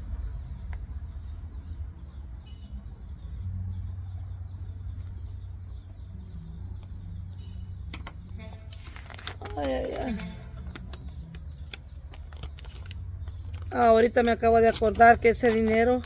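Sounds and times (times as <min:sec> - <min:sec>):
insect chirping: 0:00.0 - 0:16.0.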